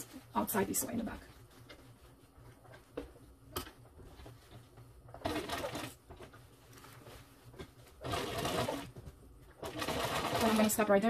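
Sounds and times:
low steady hum: 0.0 - 11.0
sewing machine stitching: 5.2 - 6.0, 8.0 - 8.9, 9.6 - 10.8.

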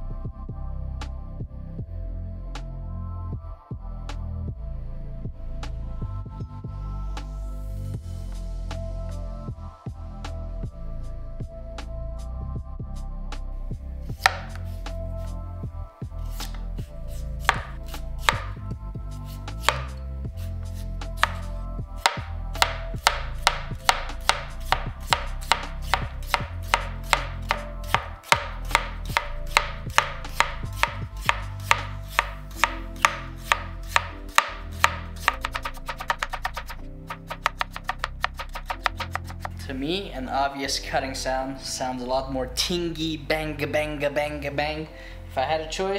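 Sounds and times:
knife chopping potato on board: 14.1 - 14.8, 16.2 - 18.6, 19.3 - 39.6.

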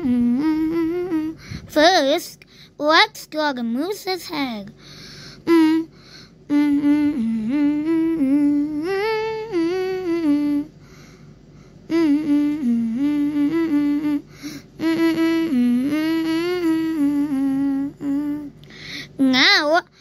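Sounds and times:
person humming: 0.0 - 1.8, 5.4 - 10.8, 11.9 - 19.3.

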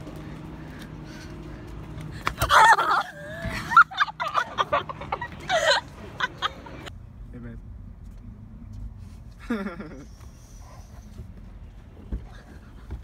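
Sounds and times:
high-pitched squeals or shrieking laughter: 2.4 - 5.8.

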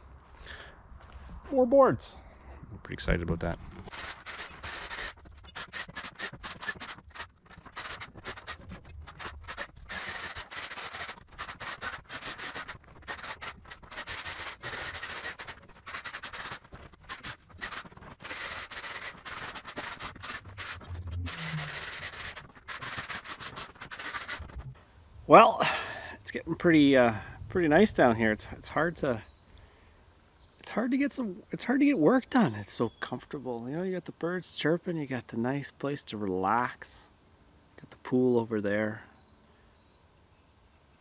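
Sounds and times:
rough scraping and rasping: 3.6 - 24.8.

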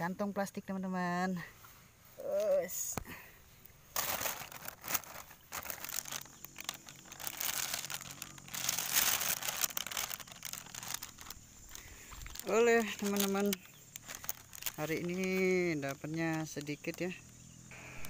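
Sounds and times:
plastic bag crinkling: 3.9 - 17.2.

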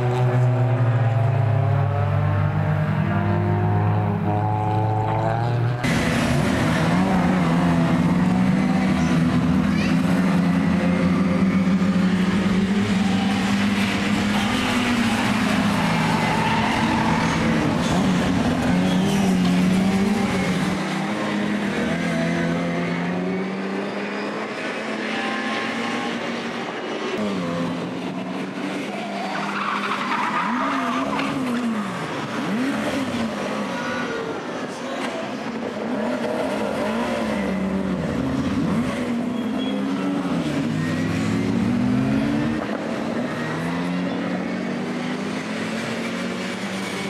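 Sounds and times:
racing car engines revving: 0.0 - 47.0.

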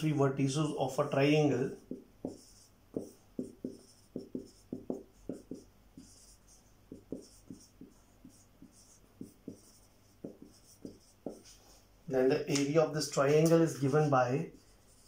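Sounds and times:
marker writing on whiteboard: 1.5 - 11.6, 13.4 - 15.0.

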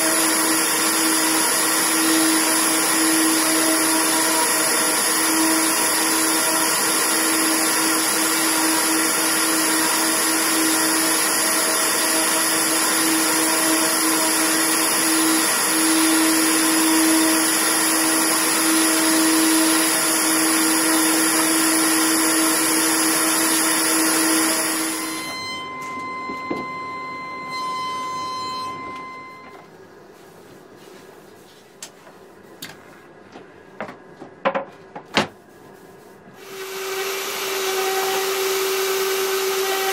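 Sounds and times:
dust extractor hum: 0.0 - 39.9
orbital sander hissing on wood: 36.4 - 39.9.

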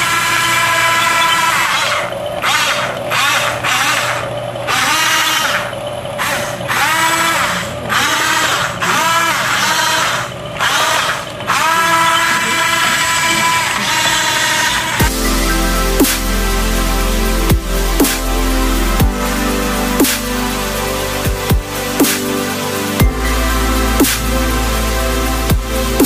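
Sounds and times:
toy electric motors whining: 0.0 - 15.0.

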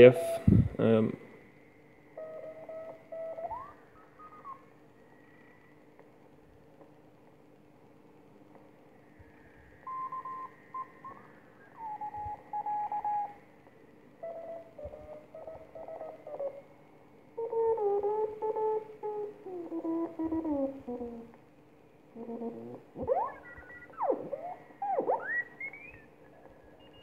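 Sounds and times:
faint hum and hiss: 0.0 - 27.0
morse code beeps: 2.2 - 4.6, 9.9 - 13.4, 23.0 - 26.1, 26.8 - 27.0.

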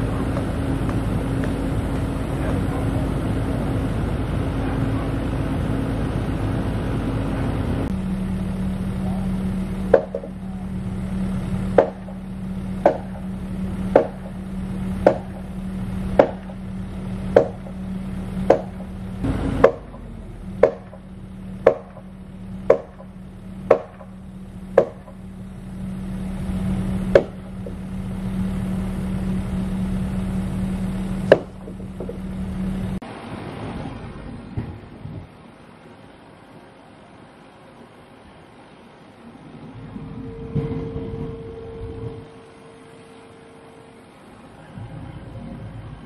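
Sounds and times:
excavator engine idling: 0.0 - 46.0
hammer striking timber: 9.8 - 10.4, 11.7 - 25.3, 27.0 - 27.9, 31.2 - 32.3.

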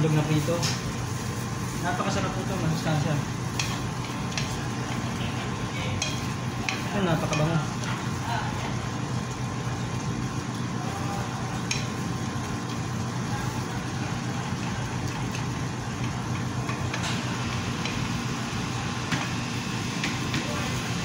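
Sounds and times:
wooden spatula stirring in pan: 3.4 - 8.8.

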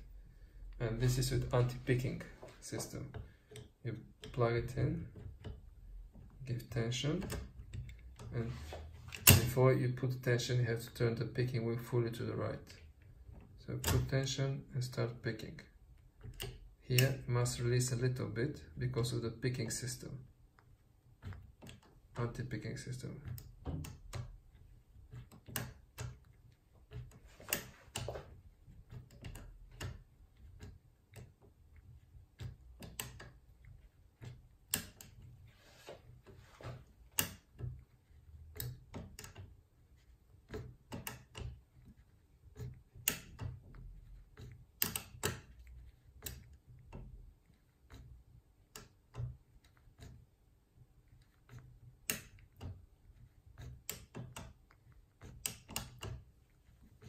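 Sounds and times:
metallic lock picking clicks: 32.4 - 35.3, 44.4 - 48.1, 51.0 - 56.3.

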